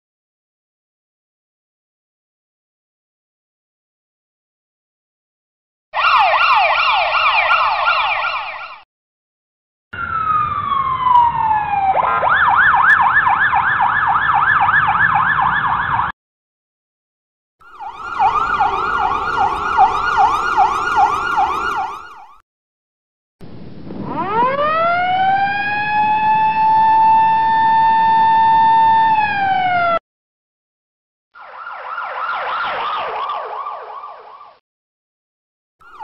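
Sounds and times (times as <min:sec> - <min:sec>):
ambulance siren: 0:06.0 - 0:08.9, 0:10.0 - 0:16.2, 0:17.6 - 0:22.4, 0:24.0 - 0:30.0, 0:31.4 - 0:34.6.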